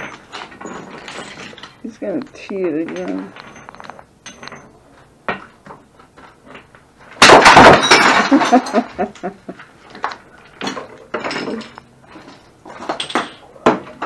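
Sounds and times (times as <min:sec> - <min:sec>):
pieces clinking and scattering: 0:00.0 - 0:01.9, 0:07.2 - 0:09.3, 0:09.9 - 0:14.0
golf club smashing object: 0:07.2 - 0:08.7.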